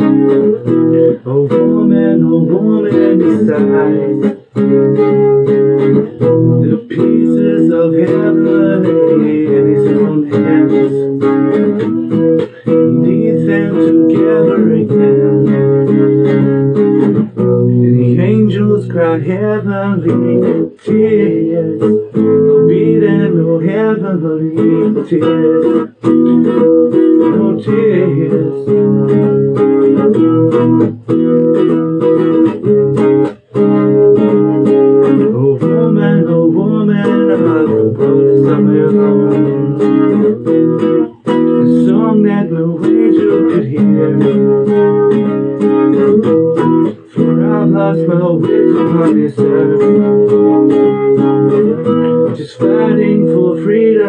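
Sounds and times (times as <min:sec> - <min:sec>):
song with guitar: 0:00.0 - 0:54.0.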